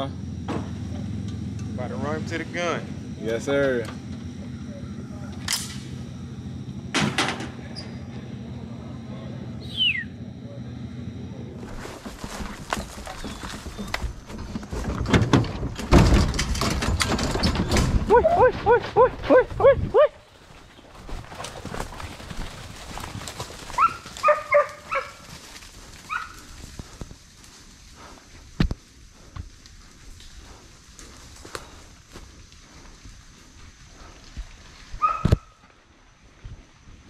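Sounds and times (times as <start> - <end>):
rustling through dry leaves: 11.6 - 14.8, 20.2 - 28.4
hound barking: 18.1 - 20.2, 23.8 - 25.3, 26.1 - 26.5, 35.0 - 35.5.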